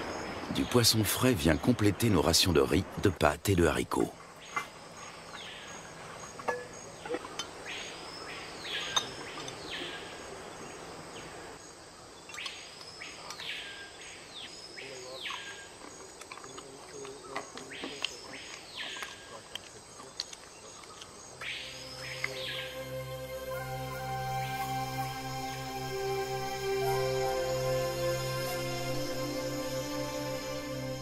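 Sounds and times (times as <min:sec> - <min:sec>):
insects buzzing: 0:00.0 - 0:31.0
plates and spoons clinking: 0:06.4 - 0:07.6, 0:08.8 - 0:09.6
bird whistled call: 0:21.4 - 0:22.8.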